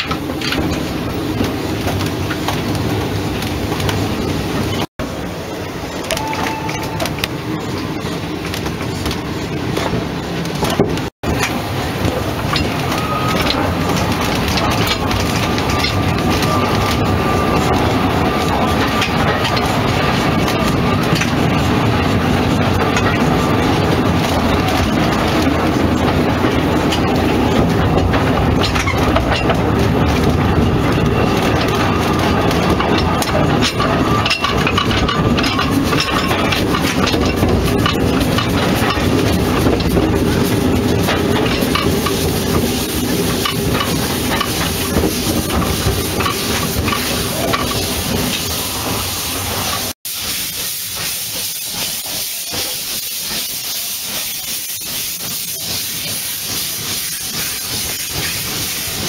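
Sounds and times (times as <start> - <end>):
steam locomotive rumble: 0.0 - 59.0
steam hissing from drain cocks: 33.3 - 59.0.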